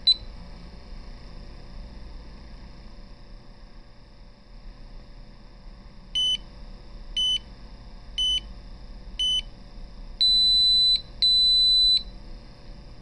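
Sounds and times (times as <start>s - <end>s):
piezo buzzer beeps: 6.2s - 6.4s, 7.2s - 7.5s, 8.2s - 8.5s, 9.2s - 9.5s, 10.2s - 12.1s.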